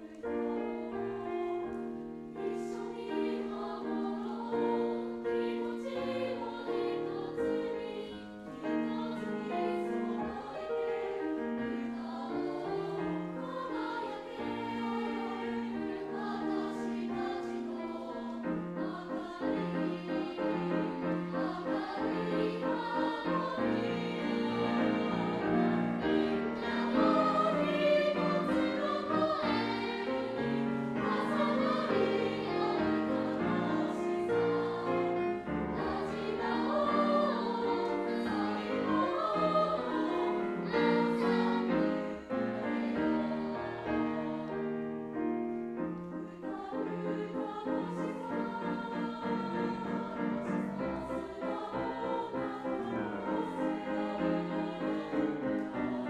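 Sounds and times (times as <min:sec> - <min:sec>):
children's choir singing: 0:00.0 - 0:45.3, 0:45.9 - 0:56.0
choir accompaniment: 0:00.0 - 0:56.0.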